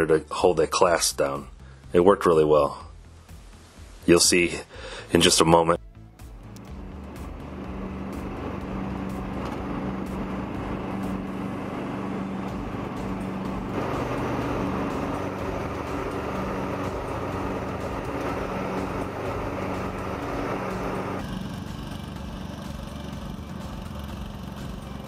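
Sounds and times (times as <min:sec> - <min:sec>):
lawn tractor engine running: 0:06.5 - 0:25.0
loud rushing noise: 0:06.8 - 0:21.6.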